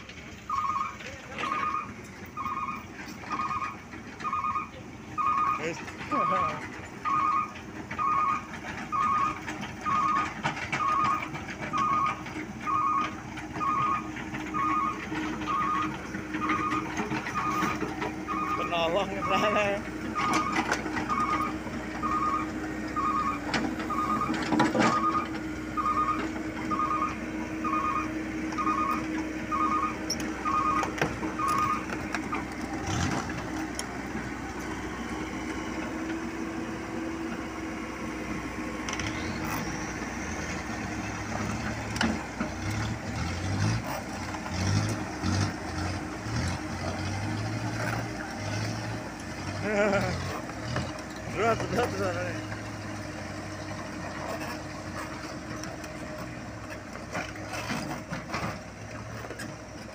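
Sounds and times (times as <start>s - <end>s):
excavator diesel engine running: 0.0s - 59.9s
reversing alarm beeps: 0.5s - 32.0s.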